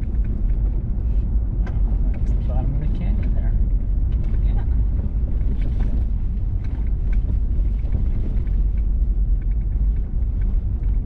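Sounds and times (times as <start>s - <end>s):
gravel ticks: 0.0s - 11.0s
vehicle tyres rumbling on gravel: 0.0s - 11.0s.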